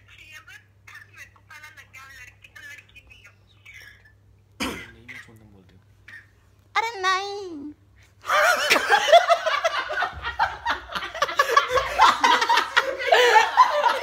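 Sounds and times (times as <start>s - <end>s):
young men laughing: 8.2s - 14.0s.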